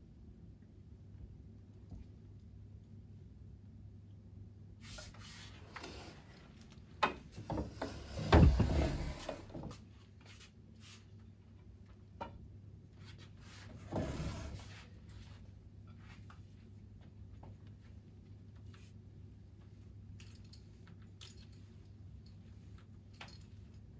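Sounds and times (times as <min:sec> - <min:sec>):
chair shifting: 0:07.1 - 0:09.8.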